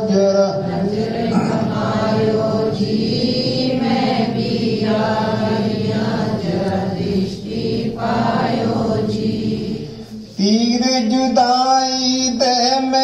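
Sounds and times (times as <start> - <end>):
choir-like chanted singing: 0.0 - 11.1.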